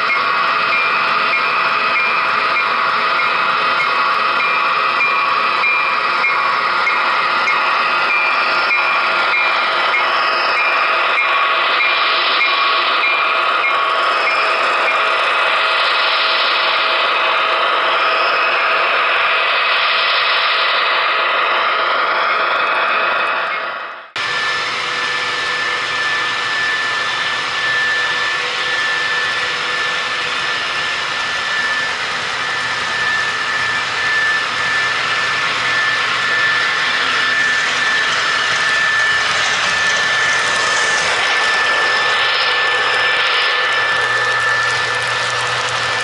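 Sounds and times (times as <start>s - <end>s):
model locomotive engine: 0.0s - 46.0s
steady high tone: 21.6s - 46.0s
wheels rolling on track: 24.2s - 46.0s.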